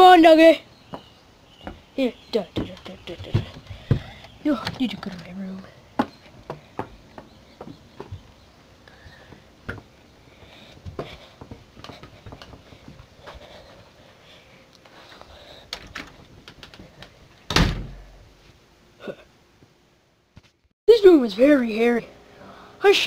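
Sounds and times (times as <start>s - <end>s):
door thumping: 2.5s - 5.0s, 17.5s - 18.1s.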